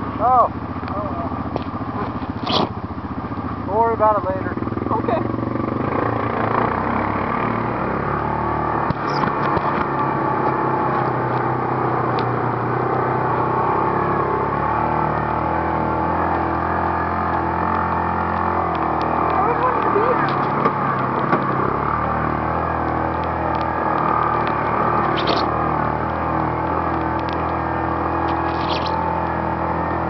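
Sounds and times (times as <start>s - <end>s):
vehicle engine running: 0.0s - 30.0s
rattling knocks over rough ground: 20.2s - 21.6s.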